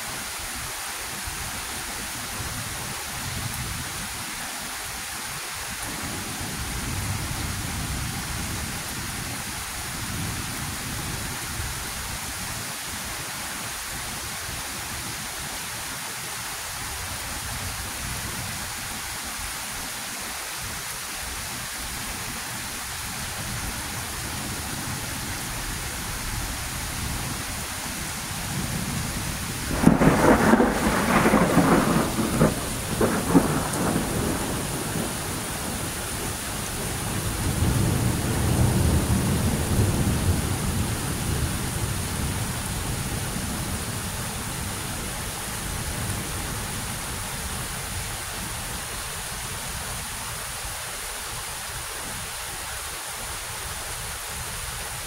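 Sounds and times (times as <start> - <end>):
heavy rain falling: 0.0 - 55.0
thunder clap rumbling: 28.5 - 42.4.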